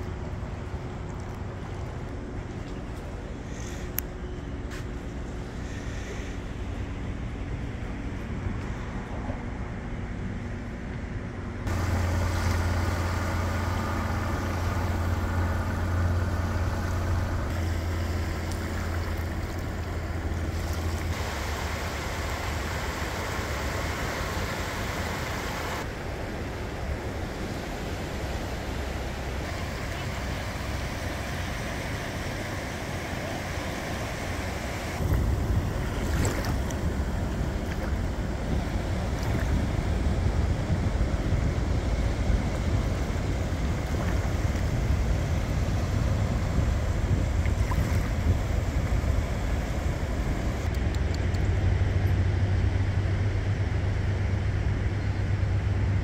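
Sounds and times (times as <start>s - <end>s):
deep steady rumble: 0.0s - 56.0s
waves lapping on sandy shore: 11.7s - 50.7s.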